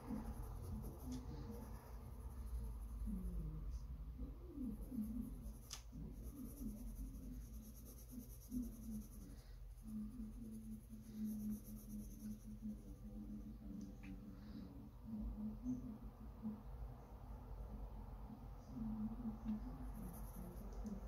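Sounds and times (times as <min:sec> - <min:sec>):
pencil scratching on paper: 0:00.0 - 0:03.8, 0:04.6 - 0:13.5, 0:19.5 - 0:21.0
faint low wavering hum: 0:00.0 - 0:21.0.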